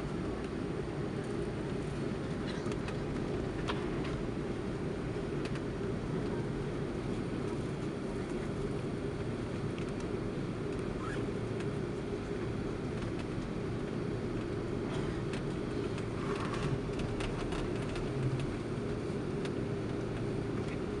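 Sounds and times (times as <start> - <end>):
airplane cabin rumble: 0.0 - 21.0.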